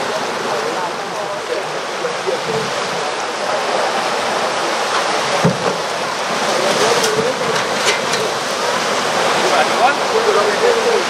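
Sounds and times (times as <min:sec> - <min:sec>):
kayak splashing in shallow water: 0:00.0 - 0:11.0
waves breaking on concrete ramp: 0:00.0 - 0:11.0.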